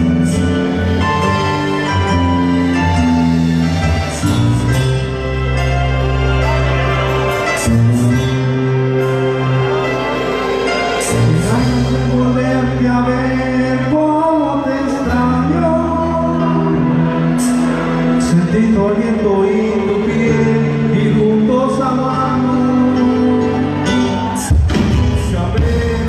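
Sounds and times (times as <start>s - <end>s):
live band playing ballad: 0.0s - 26.0s
man singing: 10.9s - 26.0s.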